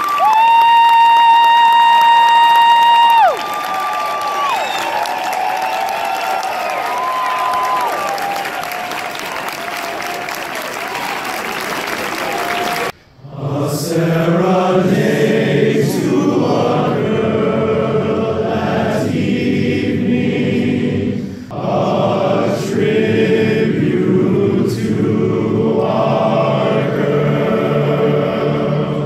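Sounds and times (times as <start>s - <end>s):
applause: 0.0s - 12.9s
choir singing: 12.6s - 29.0s.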